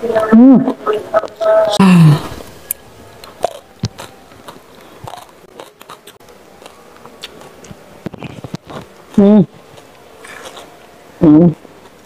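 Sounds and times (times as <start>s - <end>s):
food being chewed: 2.6s - 10.9s.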